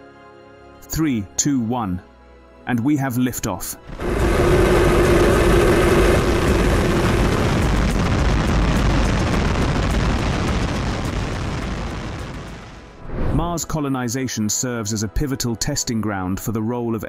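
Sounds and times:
rocket engines rumbling: 3.8s - 13.4s.

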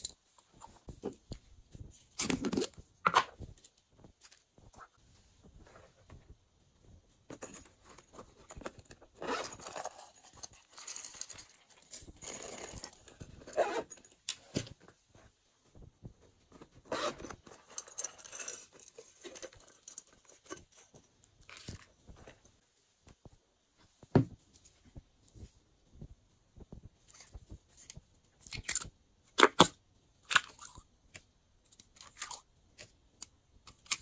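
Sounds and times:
rustling and crinkling: 0.0s - 29.0s
zipper pouch unzipping: 9.2s - 10.1s, 12.2s - 14.0s, 16.8s - 17.4s.

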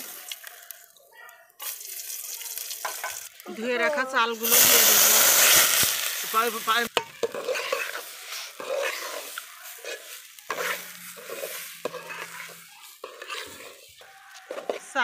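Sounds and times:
light sizzle of oil: 0.0s - 15.0s
utensil scraping through rice: 4.4s - 15.0s.

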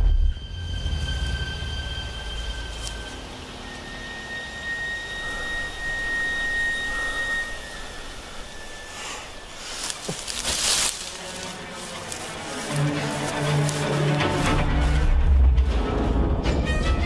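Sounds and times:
rising whoosh of noise: 0.0s - 12.4s
steady high-pitched tone: 1.3s - 12.4s.

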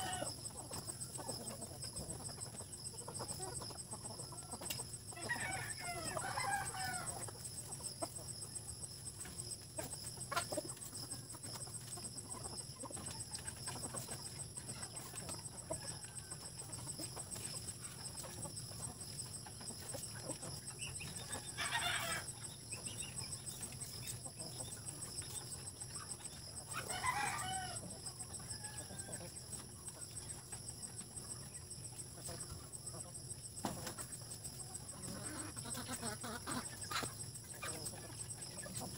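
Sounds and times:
rooster crowing: 0.0s - 0.4s, 5.2s - 7.2s, 21.3s - 22.3s, 26.7s - 29.4s
chickens clucking: 0.0s - 38.9s.

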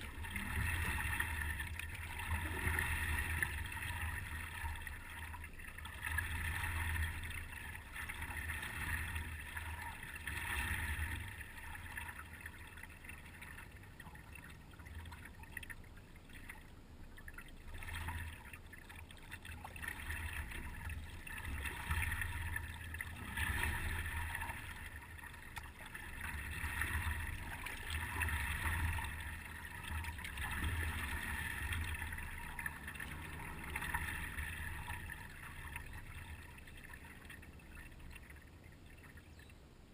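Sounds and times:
water lapping against paddleboard: 17.4s - 37.6s.

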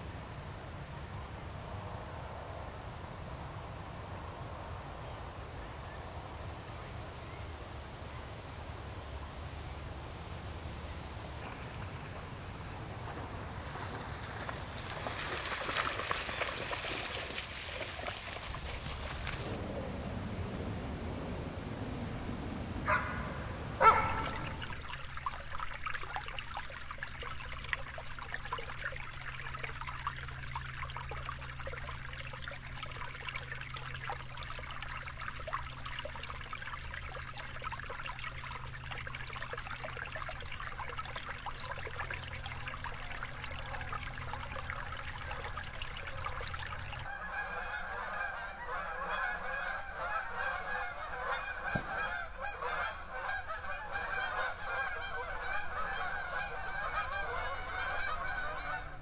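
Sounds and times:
brook babbling over rocks: 11.2s - 19.6s, 23.8s - 59.0s
geese honking: 23.8s - 24.7s, 47.1s - 59.0s.

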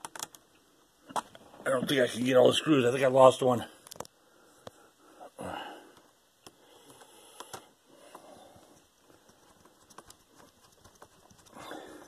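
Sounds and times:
soft breath-like rush: 4.2s - 8.9s.

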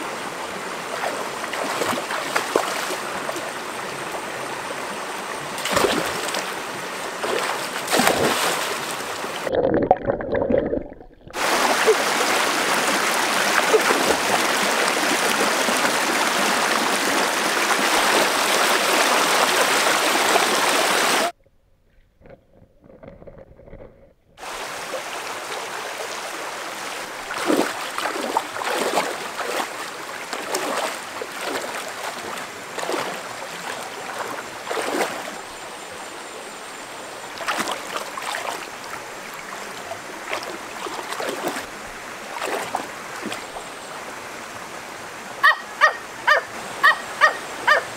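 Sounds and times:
rocky stream running: 0.0s - 21.4s, 24.4s - 47.9s
hands splashing in water: 7.2s - 9.0s, 27.2s - 35.3s, 37.4s - 38.6s, 42.4s - 43.5s.

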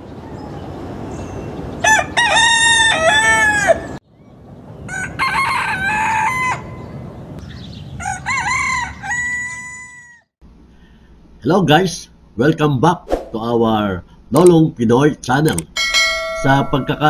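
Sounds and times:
roosters crowing: 1.7s - 4.0s, 4.8s - 7.2s, 7.8s - 10.3s.

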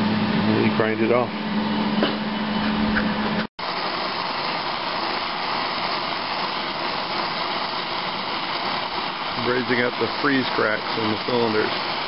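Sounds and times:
gas welding torch hissing: 3.6s - 12.0s.

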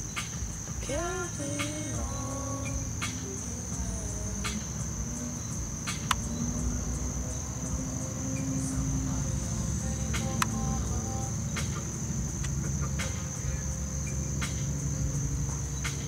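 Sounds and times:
crickets chirring: 0.0s - 16.0s
low rumble: 0.0s - 16.0s
faint clicks: 10.0s - 10.8s.

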